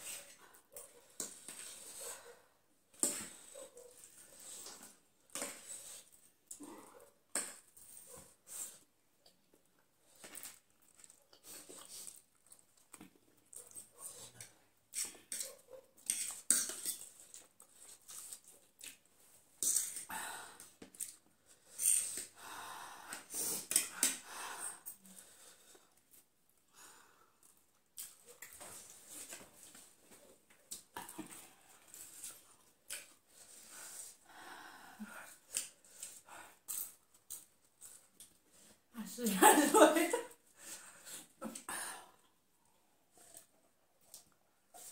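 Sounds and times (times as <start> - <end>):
wheezy breaths and sniffs: 0.0 - 9.0, 31.0 - 37.0
noodles slurped and chewed: 7.5 - 22.4.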